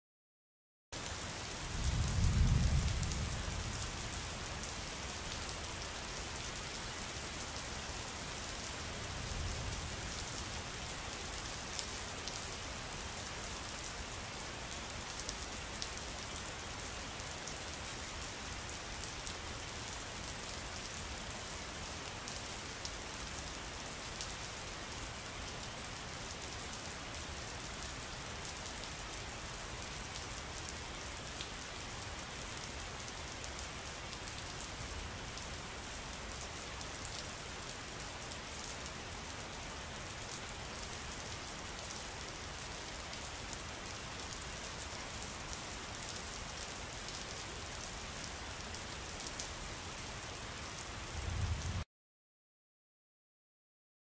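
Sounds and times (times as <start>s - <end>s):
steady rain: 1.0s - 51.9s
low rumble of thunder: 1.6s - 3.8s, 51.1s - 51.8s.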